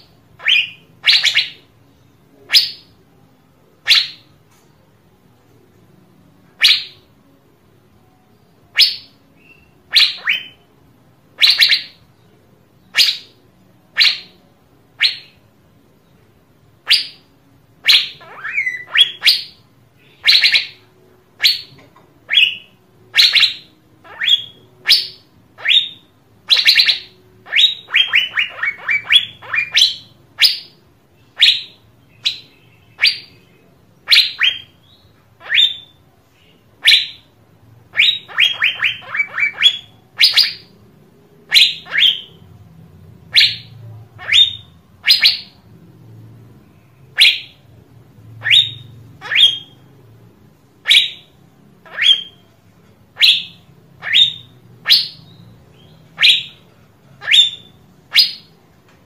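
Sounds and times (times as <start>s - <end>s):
bird giving sharp calls: 48.4s - 49.8s.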